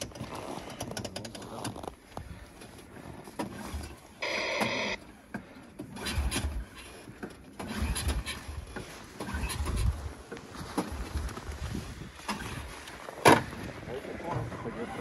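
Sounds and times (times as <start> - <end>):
snowmobile engine cranking: 3.5 - 5.0, 5.9 - 9.9.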